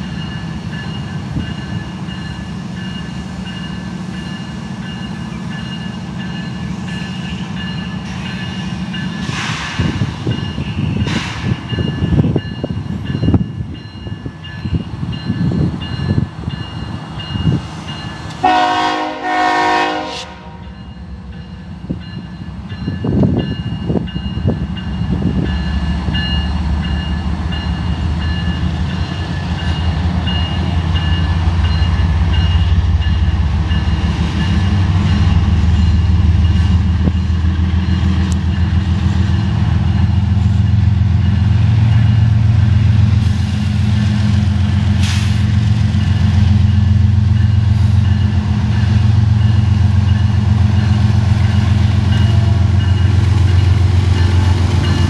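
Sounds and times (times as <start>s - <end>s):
diesel locomotive engine rumble: 0.0s - 55.0s
train horn: 18.4s - 20.8s.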